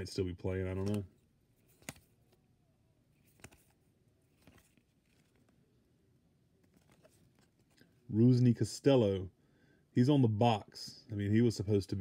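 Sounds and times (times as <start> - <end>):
paper cards shuffled by hand: 0.6 - 2.4, 3.2 - 5.6, 6.6 - 8.0.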